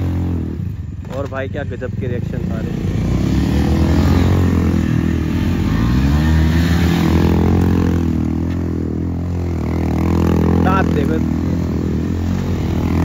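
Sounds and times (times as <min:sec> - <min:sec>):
atv engine revving: 0:00.0 - 0:13.0.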